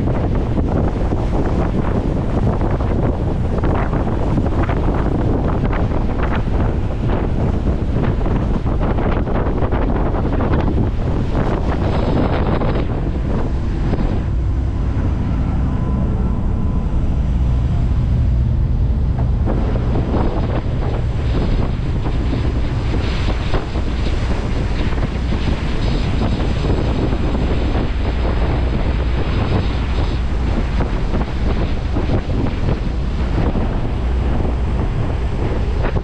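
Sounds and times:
boat engine: 0:00.0 - 0:36.0
boat wake rushing: 0:00.0 - 0:36.0
wind buffeting microphone: 0:00.0 - 0:36.0.

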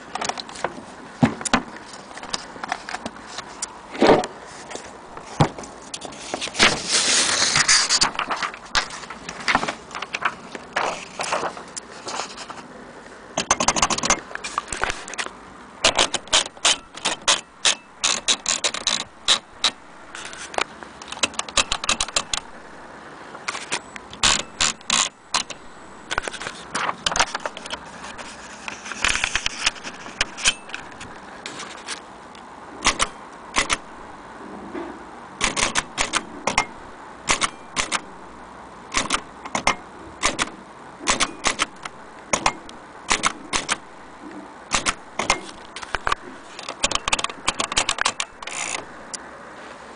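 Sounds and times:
typewriter keys clacking: 0:13.4 - 0:14.2, 0:15.8 - 0:19.8, 0:21.0 - 0:22.5, 0:23.6 - 0:27.8, 0:32.8 - 0:33.8, 0:35.4 - 0:36.7, 0:37.3 - 0:38.0, 0:39.0 - 0:40.5, 0:41.1 - 0:43.8, 0:44.7 - 0:48.8.

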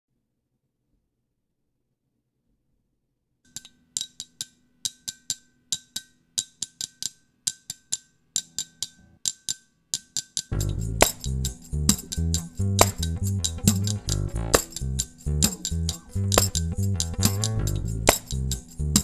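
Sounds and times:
hand-percussion groove: 0:03.5 - 0:19.0
bass guitar: 0:10.5 - 0:19.0.

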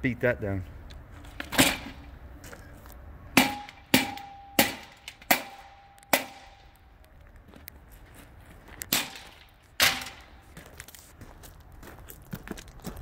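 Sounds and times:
sledgehammer striking steel edging: 0:03.4 - 0:06.7, 0:08.9 - 0:10.4
steel ringing: 0:03.4 - 0:06.7.

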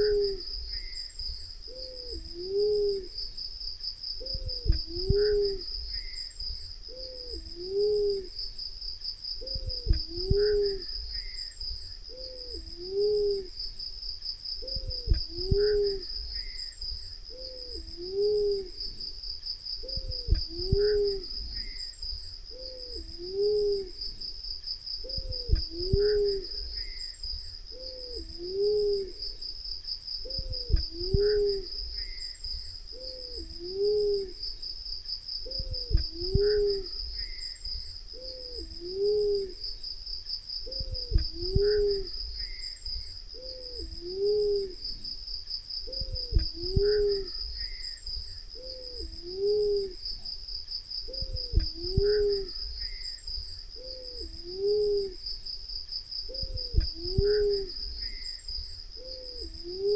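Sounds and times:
dove cooing: 0:00.0 - 0:01.0, 0:01.7 - 0:03.3, 0:04.2 - 0:06.2, 0:06.9 - 0:08.4, 0:09.4 - 0:11.3, 0:12.1 - 0:13.6, 0:14.6 - 0:16.6, 0:17.3 - 0:19.1, 0:19.8 - 0:21.8, 0:22.5 - 0:24.2, 0:25.0 - 0:27.0, 0:27.7 - 0:29.4, 0:30.2 - 0:32.2, 0:32.9 - 0:34.5, 0:35.4 - 0:37.4, 0:38.1 - 0:39.6, 0:40.6 - 0:42.2, 0:43.3 - 0:44.9, 0:45.8 - 0:47.8, 0:48.6 - 0:50.0, 0:51.1 - 0:52.6, 0:53.8 - 0:55.2, 0:56.3 - 0:57.9, 0:59.0 - 0:59.9
insect trill: 0:00.0 - 0:59.9.

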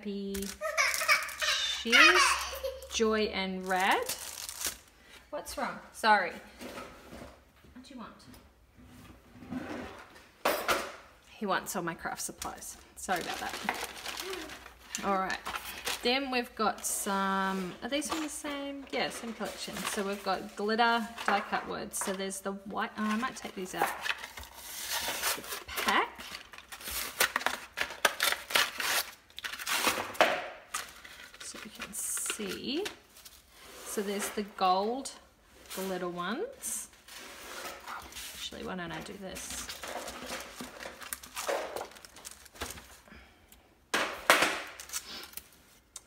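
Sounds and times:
paper packaging tearing and crinkling: 0:00.3 - 0:02.6, 0:03.6 - 0:04.9, 0:13.1 - 0:16.0, 0:24.1 - 0:33.6, 0:39.6 - 0:43.0, 0:44.7 - 0:45.6.

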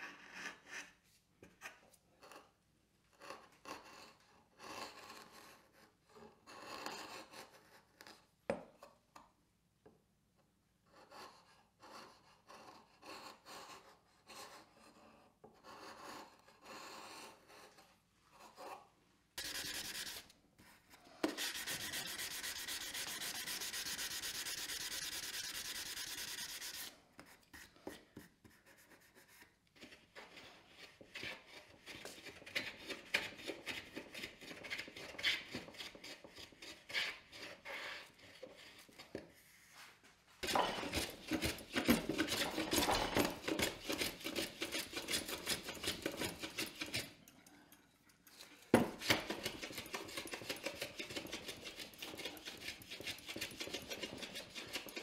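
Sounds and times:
sanding block rasping on wood: 0:19.4 - 0:20.2, 0:21.2 - 0:26.9
hand plane strokes on wood: 0:21.2 - 0:26.9, 0:40.4 - 0:47.1, 0:48.8 - 0:55.0.

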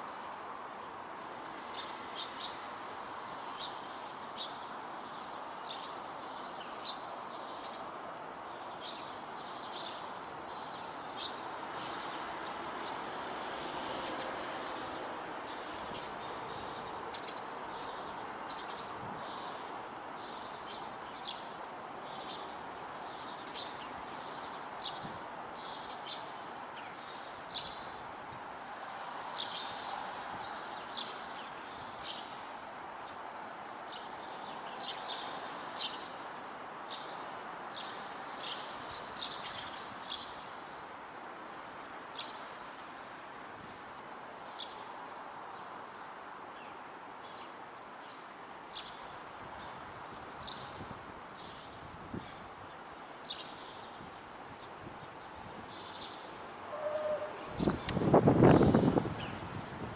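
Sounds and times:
sparrows chirping: 0:08.5 - 0:28.0, 0:33.8 - 0:36.1, 0:50.4 - 0:52.4, 0:53.2 - 0:54.0, 0:54.6 - 0:59.6.

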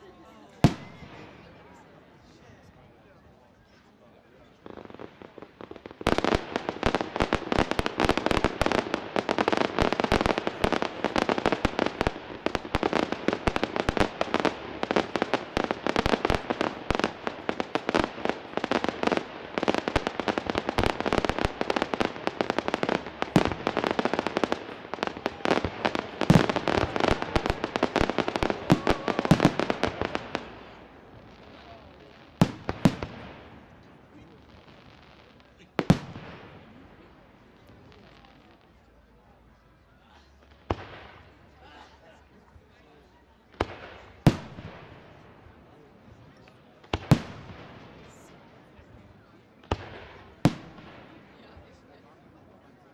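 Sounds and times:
fireworks cracking and banging: 0:04.5 - 0:38.5, 0:43.5 - 0:48.5, 0:49.2 - 0:52.0.

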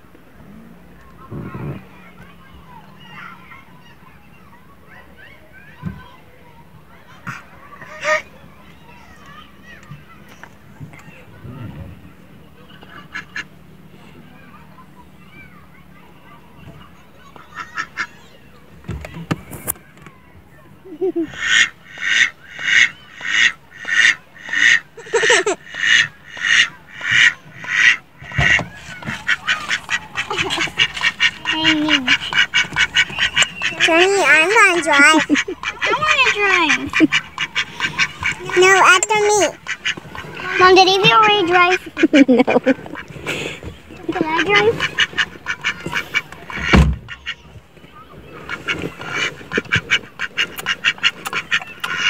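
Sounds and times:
duck quacking: 0:21.3 - 0:47.4, 0:48.4 - 0:52.0
thump: 0:46.6 - 0:47.1.

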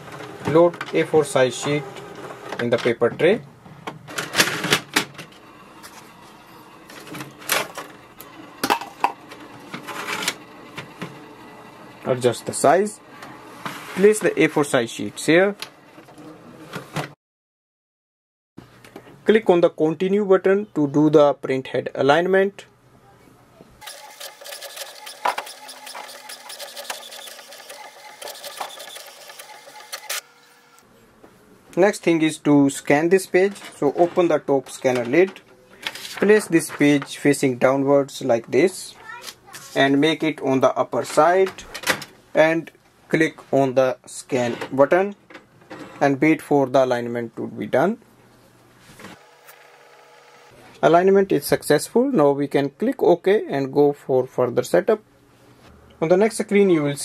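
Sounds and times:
inkjet printer printing: 0:05.2 - 0:14.1, 0:23.8 - 0:30.8, 0:49.1 - 0:50.6
plastic tray scraping: 0:13.6 - 0:14.5
printer sharp clicks: 0:23.8 - 0:30.2.

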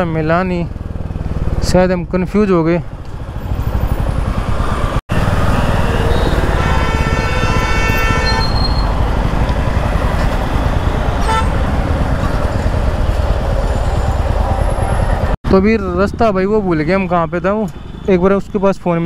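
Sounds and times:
engine and road noise: 0:00.0 - 0:19.0
vehicle horn: 0:05.4 - 0:09.0, 0:11.2 - 0:11.8.

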